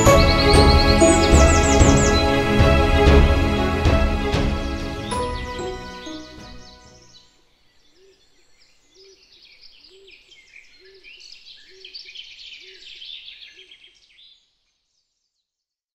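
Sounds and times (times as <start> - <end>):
low repeating note: 0.0 - 7.1
songbirds chirping and trilling: 0.0 - 15.7.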